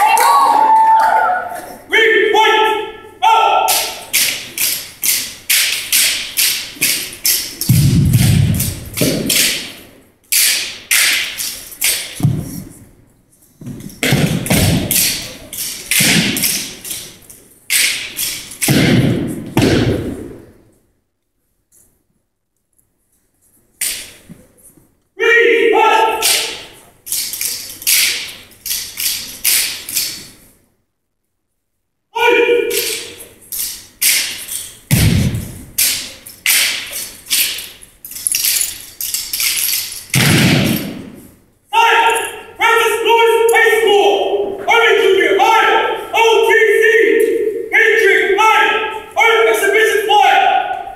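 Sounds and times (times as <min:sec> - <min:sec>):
stomps and slaps with echo: 0:03.5 - 0:13.0, 0:13.6 - 0:20.5, 0:26.1 - 0:27.3, 0:34.0 - 0:37.7, 0:40.1 - 0:41.4
heavy foot stomp thud: 0:34.9 - 0:35.7.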